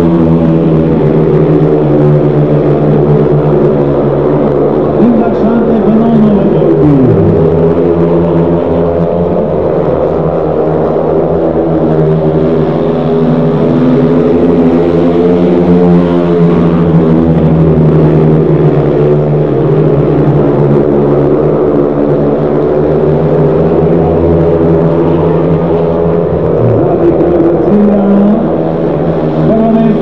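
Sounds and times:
motorcycles racing at high revs: 0.0 - 30.0.

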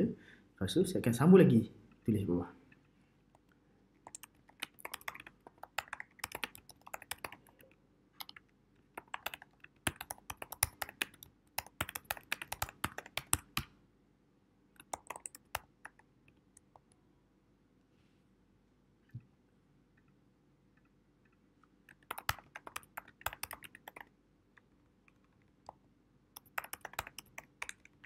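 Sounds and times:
keyboard typing: 4.0 - 13.7, 14.8 - 17.0, 21.8 - 24.1, 26.4 - 28.0.

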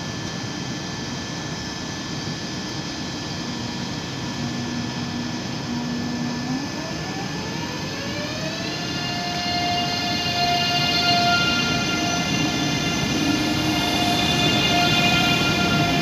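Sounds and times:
electric train motors whining: 3.5 - 16.0.

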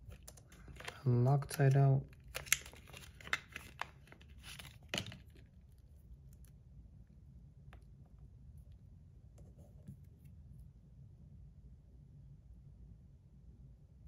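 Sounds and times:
plastic bag crinkling: 0.0 - 5.5.

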